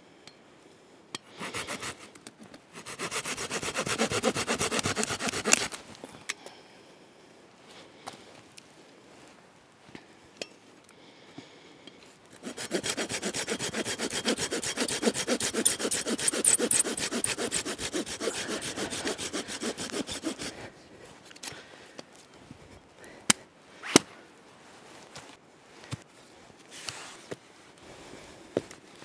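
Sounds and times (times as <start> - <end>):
hand saw cutting wood: 1.3 - 5.8, 12.4 - 20.6.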